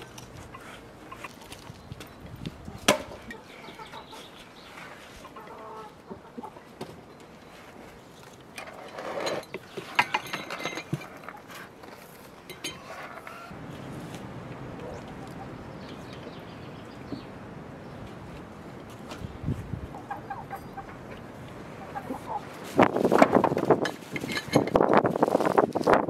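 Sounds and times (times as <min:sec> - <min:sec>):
chickens clucking: 0:00.4 - 0:01.8, 0:02.7 - 0:07.1, 0:12.7 - 0:13.6, 0:19.9 - 0:22.7.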